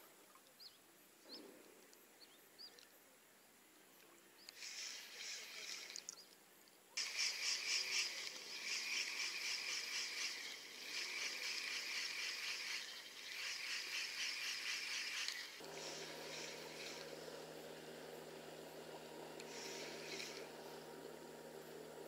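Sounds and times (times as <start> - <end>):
insects chirping: 4.4 - 21.8.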